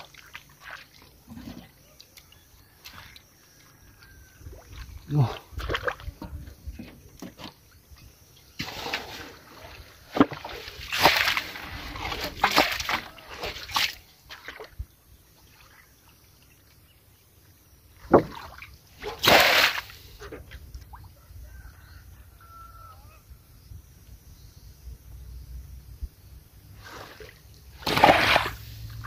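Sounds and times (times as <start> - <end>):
muddy water splashing: 0.0 - 7.9, 8.5 - 16.8, 18.0 - 21.0, 26.8 - 29.0.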